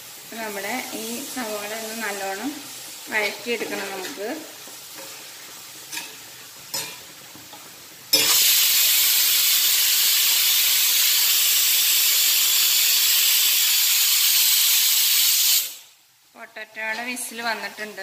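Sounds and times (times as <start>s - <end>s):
spoon scraping pan: 3.1s - 8.4s
pressure cooker hissing steam: 8.1s - 16.0s.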